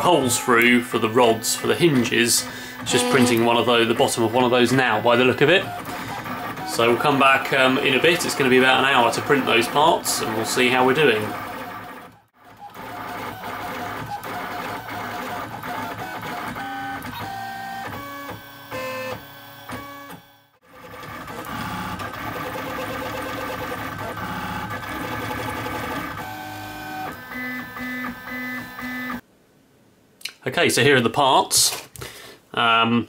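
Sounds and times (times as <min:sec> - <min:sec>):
stepper motors whining: 0:00.0 - 0:20.4.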